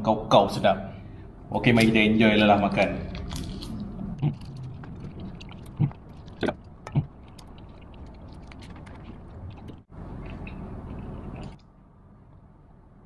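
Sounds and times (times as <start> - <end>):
man chewing: 3.0 - 11.7
wet mouth clicks: 3.2 - 11.7.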